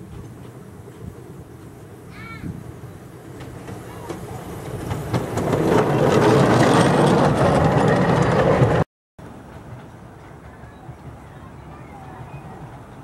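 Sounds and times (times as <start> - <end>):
miniature steam train passing: 0.0 - 13.0
wheels clattering over track: 3.2 - 11.2.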